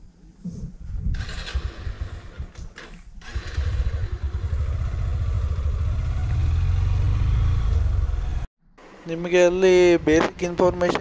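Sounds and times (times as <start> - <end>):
motorcycle engine at low revs: 1.1 - 8.5.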